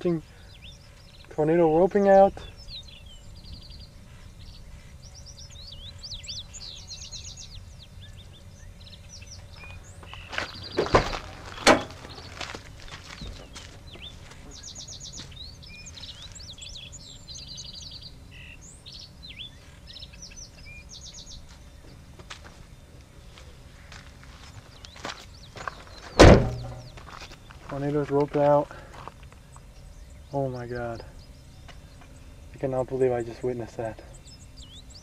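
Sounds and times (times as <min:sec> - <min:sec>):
low outdoor rumble: 0:00.0 - 0:35.0
songbirds chirping: 0:00.0 - 0:35.0
sharp knocks: 0:26.2 - 0:27.0.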